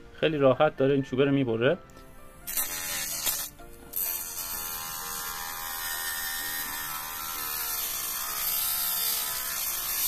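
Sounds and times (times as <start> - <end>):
small motor whining grinding wood: 2.5 - 10.0.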